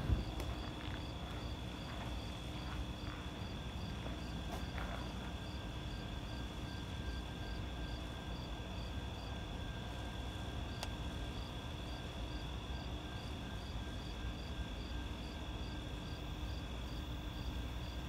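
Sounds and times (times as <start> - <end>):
faint low rumble: 0.0 - 8.2
crickets chirping: 0.0 - 18.0.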